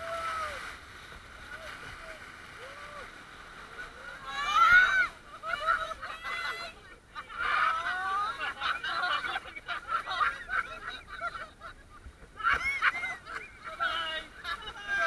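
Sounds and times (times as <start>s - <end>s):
people shrieking and laughing: 3.8s - 15.0s.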